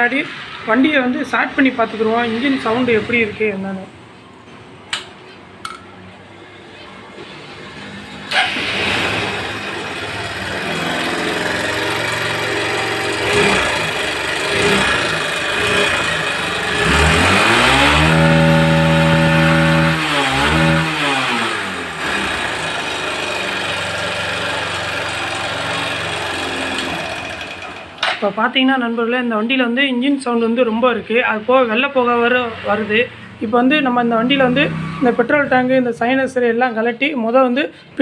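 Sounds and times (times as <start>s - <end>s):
motorcycle engine idling and revving: 0.0s - 3.7s, 7.2s - 28.3s, 31.4s - 36.1s.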